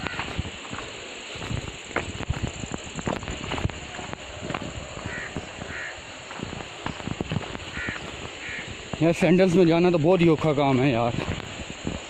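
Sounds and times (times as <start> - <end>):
footsteps crunching on stony path: 0.0 - 12.0
leaves brushing: 0.0 - 12.0
bird calls: 4.9 - 9.3.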